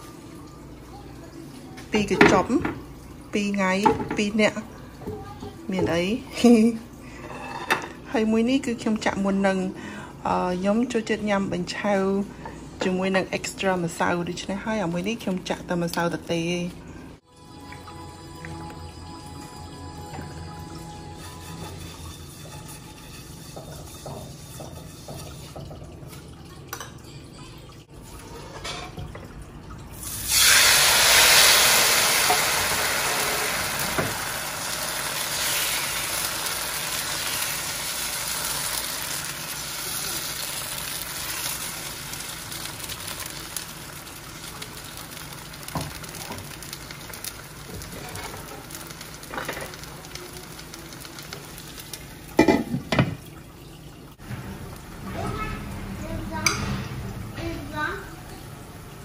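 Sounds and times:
batter sizzling in a hot wok: 20.8s - 25.5s, 30.0s - 52.5s.

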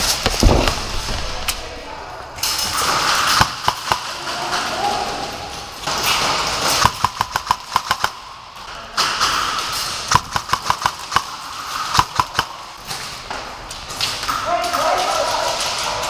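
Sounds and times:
airsoft guns firing rapidly: 2.7s - 5.2s, 5.8s - 8.4s, 9.3s - 12.8s.

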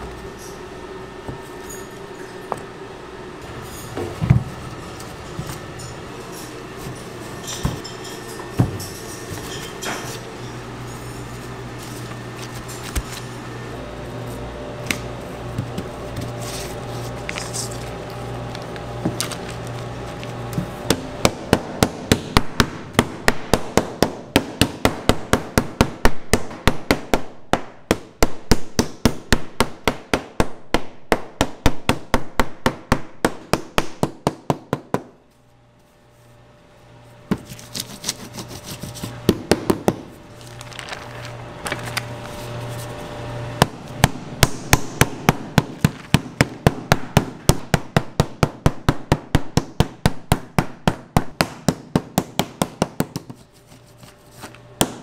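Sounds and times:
steady hum: 0.0s - 55.0s
meat mallet pounding: 20.8s - 35.1s, 43.6s - 53.4s.

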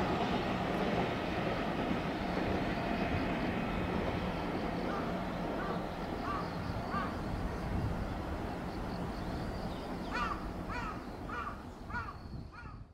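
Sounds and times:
crow cawing: 10.1s - 12.8s.

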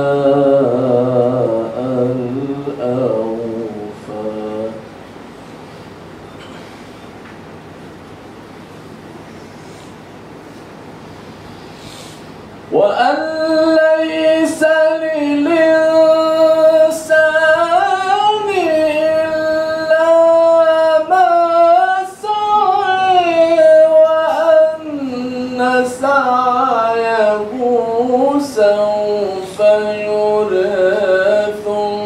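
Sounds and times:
man reciting melodically into microphone: 0.0s - 4.9s, 12.7s - 32.0s.

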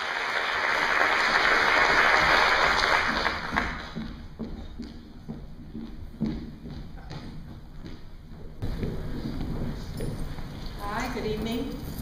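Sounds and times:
audience applauding: 0.0s - 4.2s.

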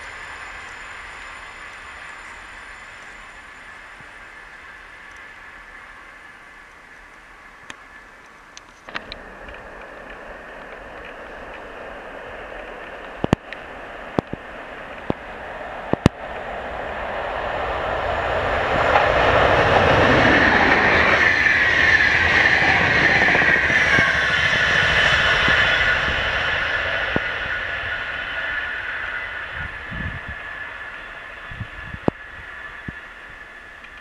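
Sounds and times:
train wheels rumbling on rail: 0.0s - 34.0s
high whine dropping in pitch: 8.9s - 33.6s.

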